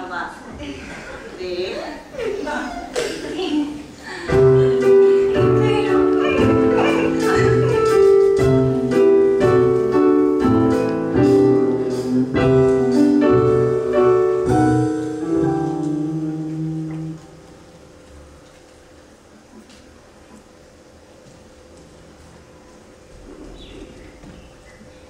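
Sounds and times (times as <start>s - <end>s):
piano chords: 3.0s - 18.4s
live band playing: 4.3s - 17.6s.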